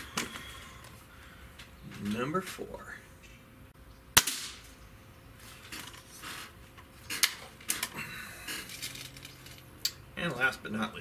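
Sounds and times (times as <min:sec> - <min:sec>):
air rifle shot: 0:04.2 - 0:04.7.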